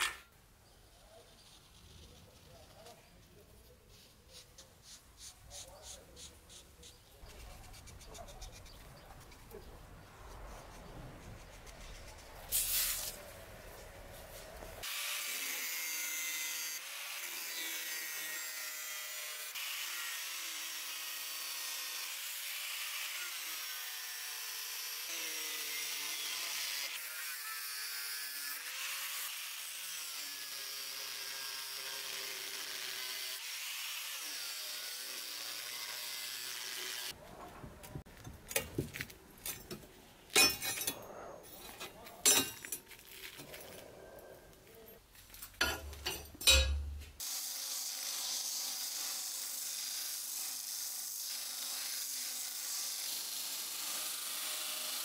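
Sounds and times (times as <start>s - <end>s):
angle grinder cutting steel: 0.0s - 0.2s, 14.8s - 37.2s, 45.6s - 55.0s
steel clinking: 39.4s - 43.6s, 45.3s - 47.1s.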